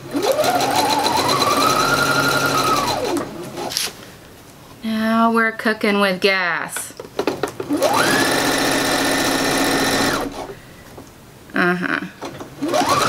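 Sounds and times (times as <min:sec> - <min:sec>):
sewing machine motor stitching: 0:00.0 - 0:03.8, 0:07.7 - 0:10.6, 0:12.6 - 0:13.0.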